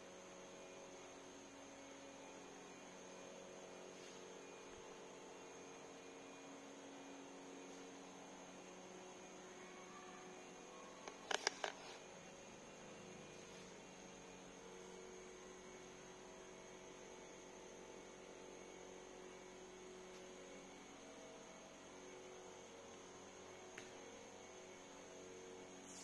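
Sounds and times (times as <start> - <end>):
faint steady hum: 0.0 - 26.0.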